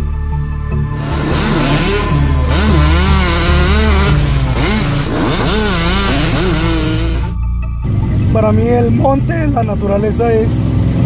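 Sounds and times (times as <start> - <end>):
off-road vehicle engine revving: 0.9 - 11.0.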